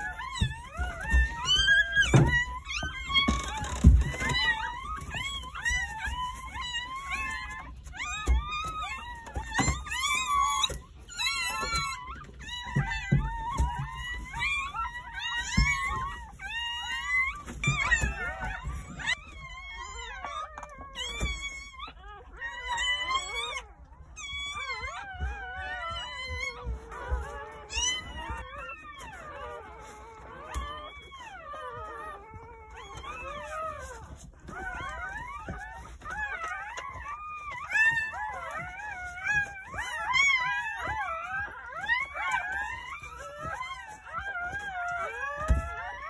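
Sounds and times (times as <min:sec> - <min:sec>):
puppies crying: 0:00.0 - 0:46.0.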